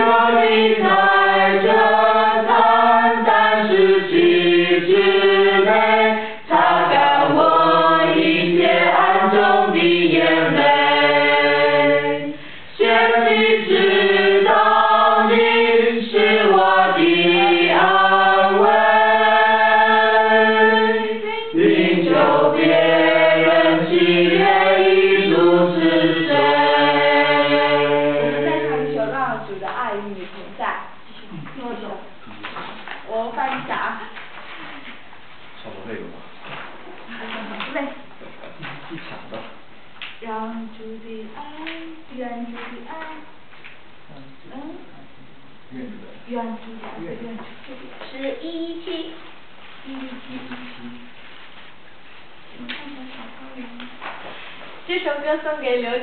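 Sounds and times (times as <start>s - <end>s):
choir singing long notes: 0.0s - 29.5s.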